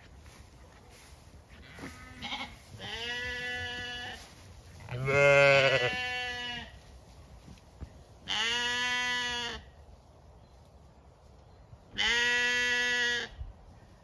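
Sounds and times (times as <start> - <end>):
sheep bleating: 1.6 - 4.2, 4.8 - 6.8, 8.2 - 9.6, 12.0 - 13.3.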